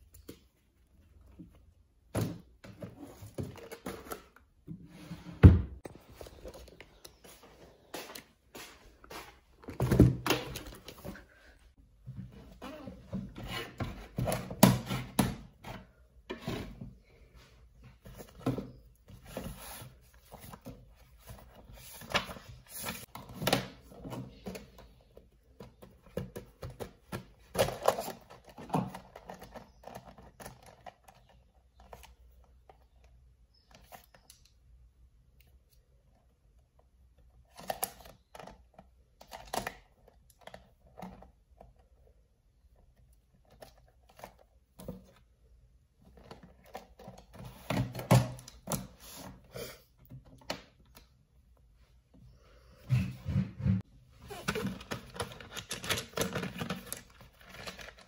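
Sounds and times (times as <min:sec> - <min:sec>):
small objects knocking and rustling: 0:54.3 - 0:58.0.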